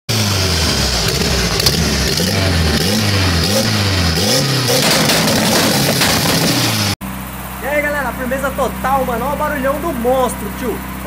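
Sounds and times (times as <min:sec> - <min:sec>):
car engine revving: 0:00.1 - 0:07.0.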